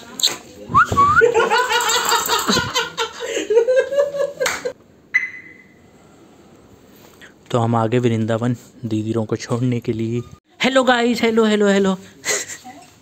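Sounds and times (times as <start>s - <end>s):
people laughing: 1.0s - 4.8s.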